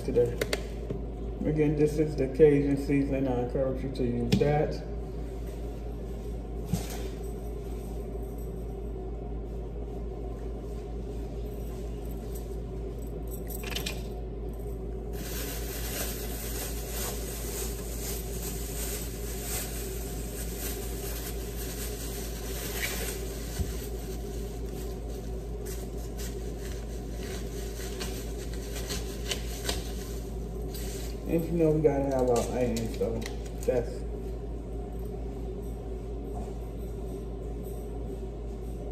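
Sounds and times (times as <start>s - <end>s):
steady low hum: 0.0s - 38.9s
plastic bag rustling: 15.1s - 33.2s.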